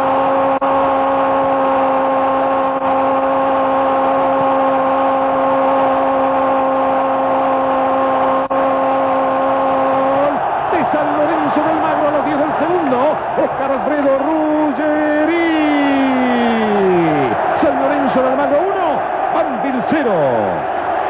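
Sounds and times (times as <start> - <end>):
stadium crowd cheering: 0.0 - 21.0
commentator shouting: 9.9 - 20.7.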